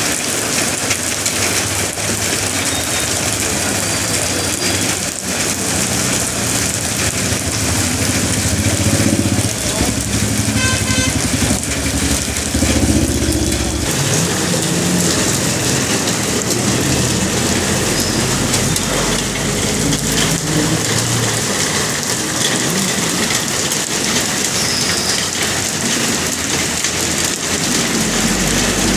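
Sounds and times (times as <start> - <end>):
hail pelting down: 0.0 - 28.9.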